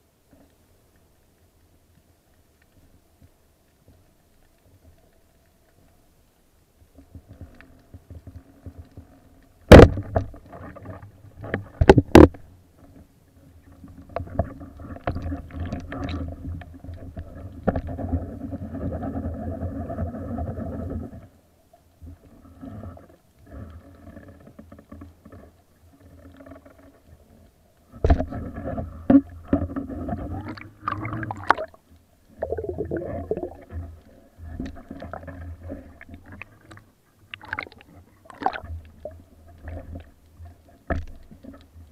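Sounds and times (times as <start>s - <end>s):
churning underwater noise: 28.0s - 40.1s.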